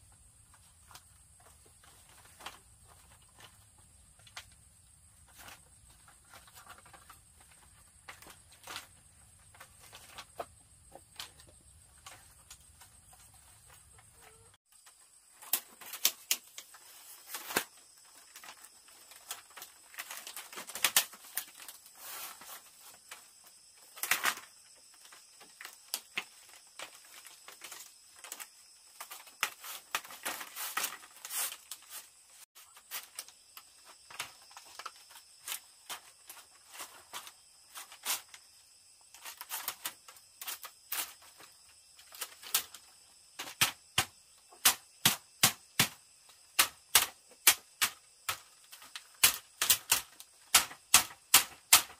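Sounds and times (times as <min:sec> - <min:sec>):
bamboo knocking and cracking: 0:05.3 - 0:21.8, 0:32.6 - 0:38.3, 0:43.4 - 0:51.9.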